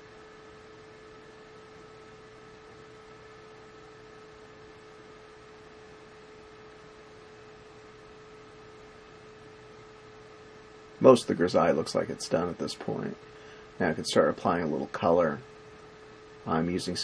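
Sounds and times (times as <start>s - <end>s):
electrical hum: 0.0s - 17.0s
steady hiss: 11.0s - 17.0s.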